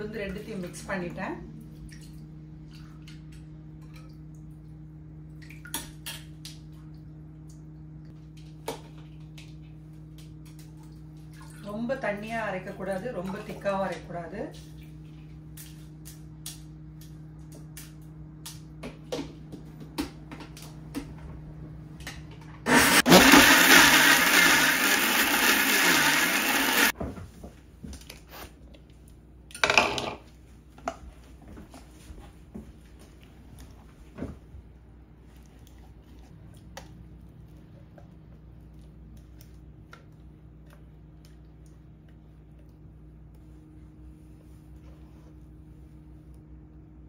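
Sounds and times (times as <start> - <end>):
mixer grinder grinding: 22.6 - 27.0.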